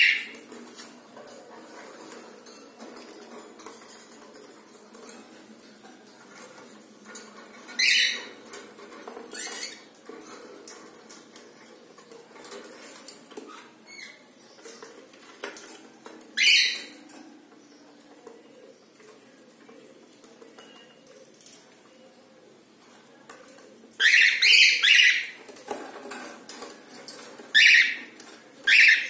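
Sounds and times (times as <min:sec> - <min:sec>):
cockatiel calls: 0:28.7 - 0:29.0.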